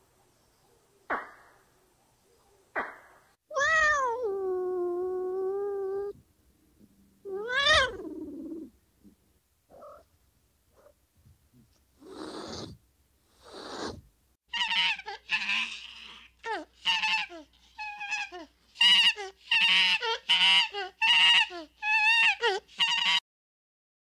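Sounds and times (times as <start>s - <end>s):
breathy hisses: 12.0s - 14.1s.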